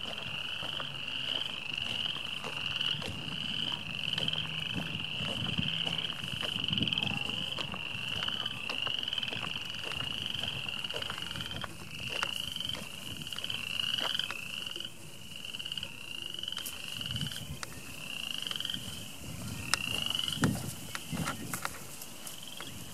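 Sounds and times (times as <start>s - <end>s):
frogs trilling: 0.0s - 22.9s.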